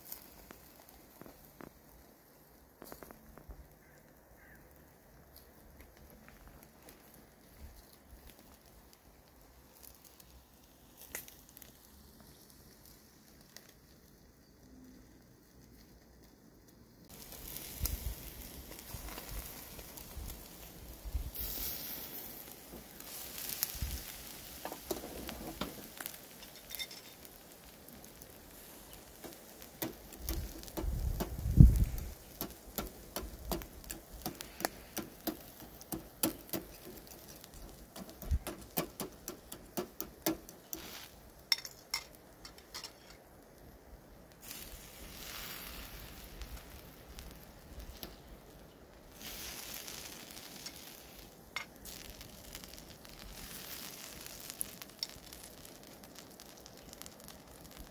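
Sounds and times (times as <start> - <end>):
fat sizzling: 0.0 - 57.9
fire crackling: 0.0 - 57.9
sharp pops: 29.2 - 42.8.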